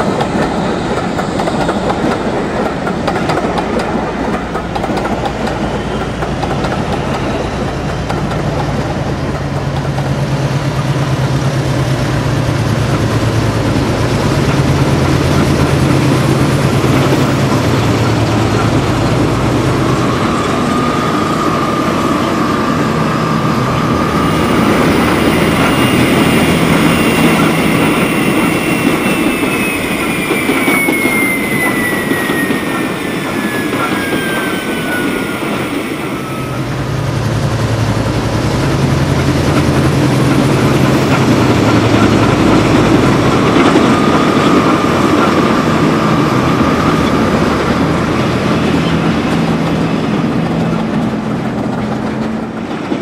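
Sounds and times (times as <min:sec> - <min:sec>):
model diesel locomotive engine: 0:00.0 - 0:53.0
steady high whine: 0:12.5 - 0:51.6.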